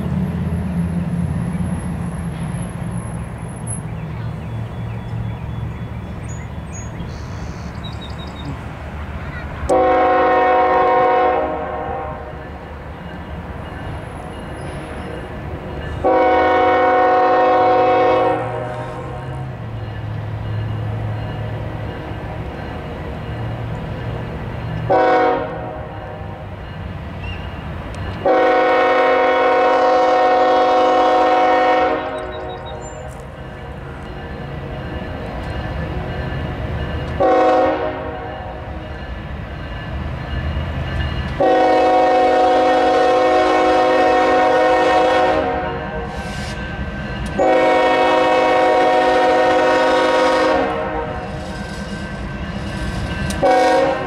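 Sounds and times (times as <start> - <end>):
diesel locomotive rumble: 0.0 - 54.0
train horn blasts: 9.7 - 12.4, 16.0 - 19.1, 24.9 - 26.4, 28.2 - 32.8, 37.1 - 38.7, 41.3 - 46.3, 47.2 - 51.8, 53.0 - 54.0.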